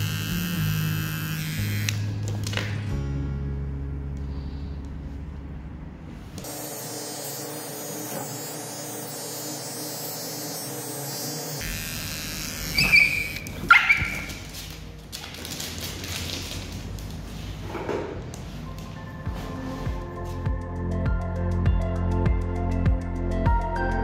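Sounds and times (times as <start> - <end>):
cordless trimmer buzzing: 0.0 - 2.5, 6.4 - 14.7
dog barking sharply: 12.8 - 14.4.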